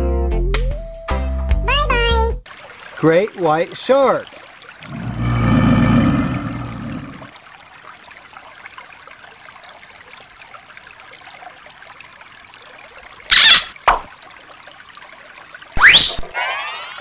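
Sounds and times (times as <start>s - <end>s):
stream trickling over rocks: 2.4s - 17.0s.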